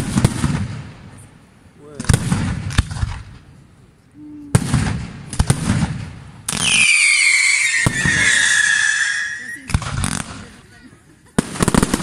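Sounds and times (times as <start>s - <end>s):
fireworks bangs and crackle: 0.0s - 3.6s, 4.5s - 12.0s
whistling fireworks: 4.6s - 10.6s, 11.4s - 12.0s.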